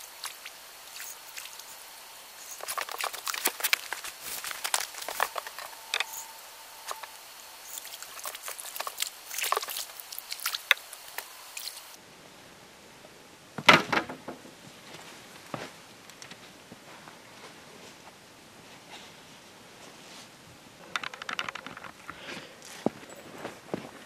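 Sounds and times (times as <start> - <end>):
faint steady tone: 0.0 - 13.5
fishing tackle clicks and rustles: 2.4 - 6.2
clattering: 20.8 - 22.2.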